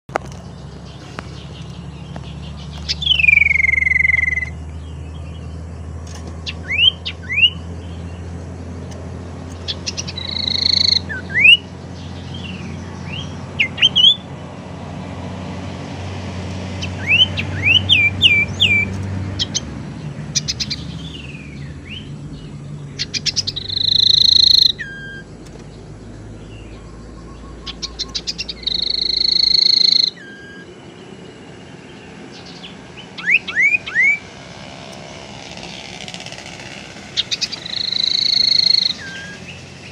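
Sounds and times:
bird harsh buzzy calls: 0:00.2 - 0:05.0, 0:06.1 - 0:14.4, 0:16.6 - 0:39.9
bird whistled notes: 0:02.8 - 0:04.6, 0:06.5 - 0:07.6, 0:09.8 - 0:11.6, 0:16.8 - 0:19.6, 0:23.0 - 0:25.3, 0:27.2 - 0:30.7, 0:33.2 - 0:34.2, 0:36.6 - 0:39.9
bird rattle of ticks: 0:34.8 - 0:39.9.

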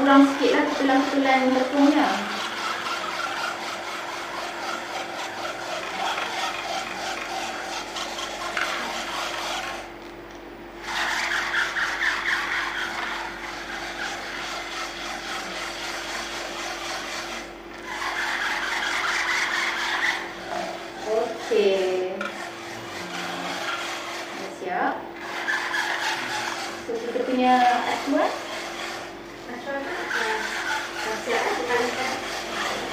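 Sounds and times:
batter scraping through mesh sieve: 0:00.0 - 0:09.9, 0:10.9 - 0:32.9.

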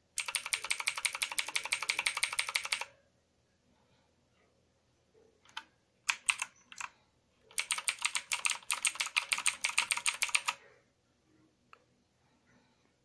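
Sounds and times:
mechanical keyboard typing: 0:00.2 - 0:02.9, 0:05.5 - 0:06.9, 0:07.5 - 0:10.6.

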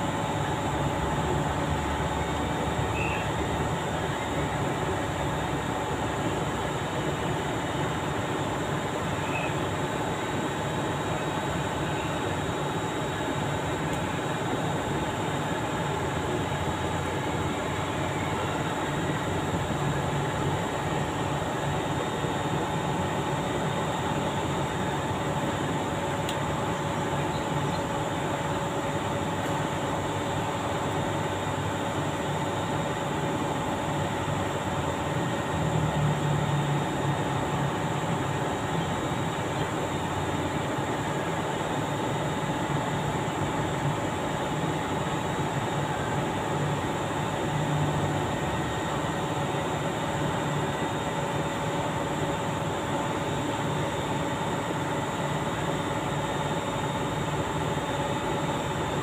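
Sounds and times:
steady machine drone: 0:00.0 - 0:59.0.

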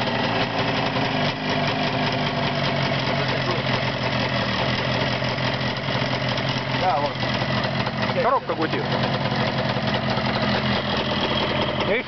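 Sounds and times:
two-stroke motorcycle engine running: 0:00.0 - 0:12.0.

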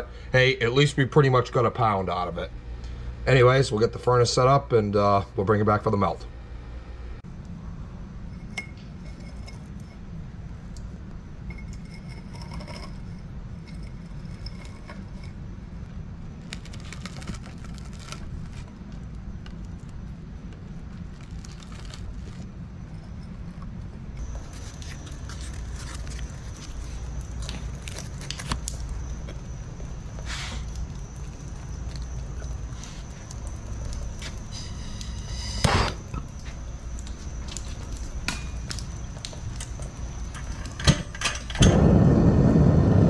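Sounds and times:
copper wire rustling and clinking: 0:10.7 - 0:15.4, 0:16.4 - 0:41.7
low rumble: 0:41.5 - 0:43.0.

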